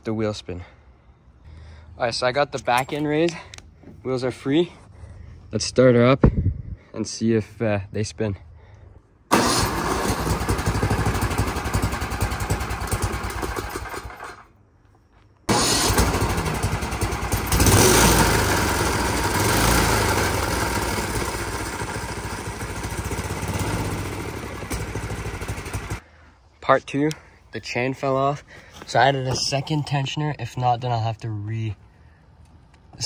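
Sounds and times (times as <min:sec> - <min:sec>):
single-cylinder engine running: 0:09.3 - 0:14.5, 0:15.5 - 0:26.0.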